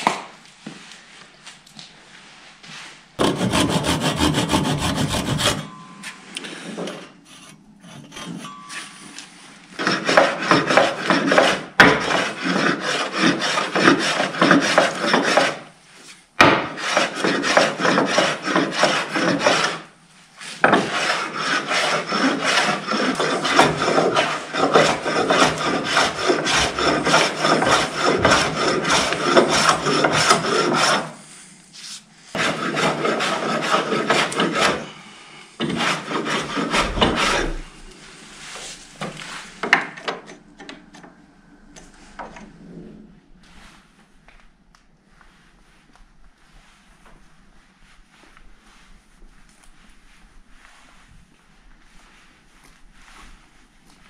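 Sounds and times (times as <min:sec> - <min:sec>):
hand tool shaping wood: 0:03.2 - 0:05.7, 0:06.7 - 0:09.0, 0:09.8 - 0:15.7, 0:16.4 - 0:31.2, 0:31.8 - 0:35.0, 0:35.6 - 0:39.9.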